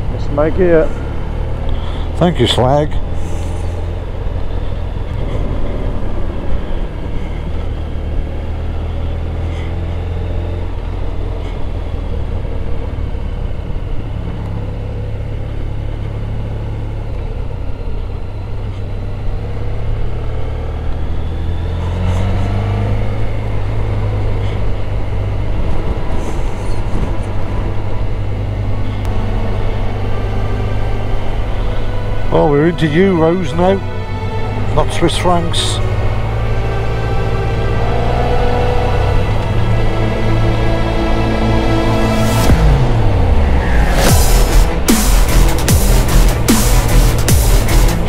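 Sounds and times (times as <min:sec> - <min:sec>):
motorcycle engine running: 0:42.0 - 0:48.0.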